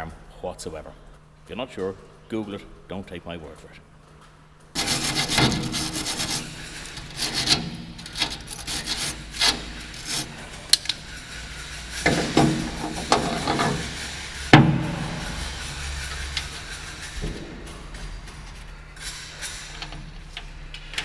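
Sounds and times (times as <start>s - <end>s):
wire brush scrubbing steel: 4.8s - 18.1s.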